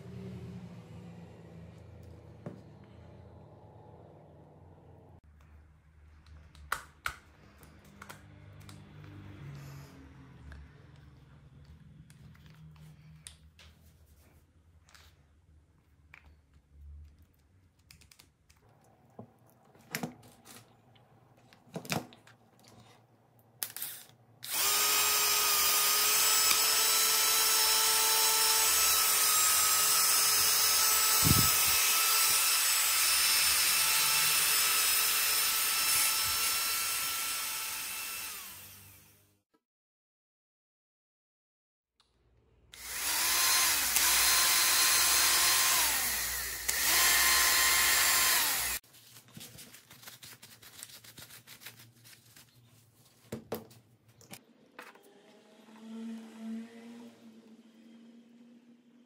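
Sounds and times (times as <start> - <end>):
drill motor whining: 24.4 - 39.3, 42.8 - 48.8.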